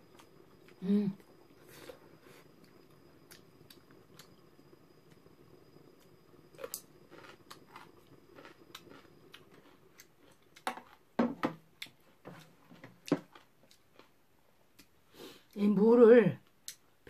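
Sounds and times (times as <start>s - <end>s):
quiet chewing: 0.1s - 4.4s, 6.0s - 11.1s, 11.8s - 15.6s.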